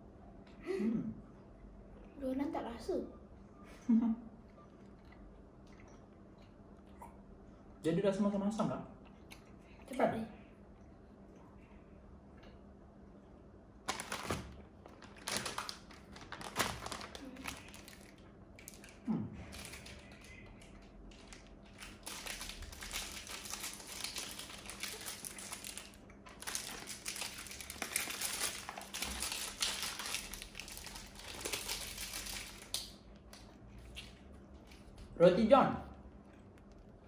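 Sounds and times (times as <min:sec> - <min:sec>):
plastic sweet wrappers crinkling: 0:13.8 - 0:35.0.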